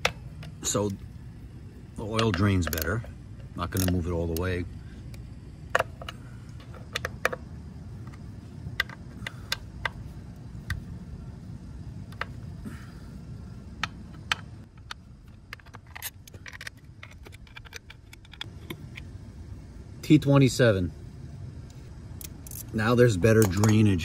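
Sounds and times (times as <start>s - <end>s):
steady low rumble: 0.0s - 24.0s
metallic clicks of driver on bolts: 3.7s - 4.5s.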